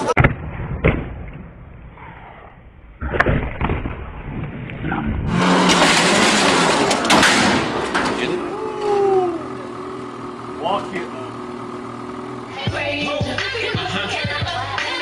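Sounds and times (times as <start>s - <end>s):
knocks and scraping clatter: 3.2s - 9.0s
snowmobile engine revving: 5.3s - 15.0s.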